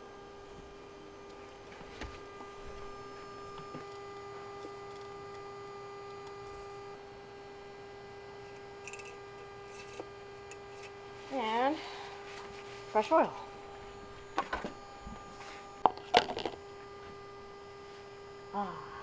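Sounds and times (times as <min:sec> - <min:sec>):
electrical hum: 0:00.0 - 0:19.0
metal parts scraping: 0:08.8 - 0:10.9.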